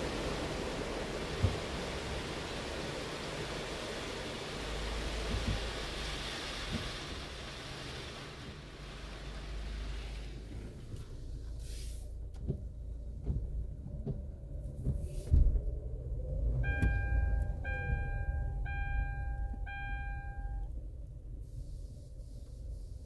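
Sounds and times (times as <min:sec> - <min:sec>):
low rumble: 0:09.6 - 0:22.8
car warning chime beeps: 0:16.6 - 0:20.8.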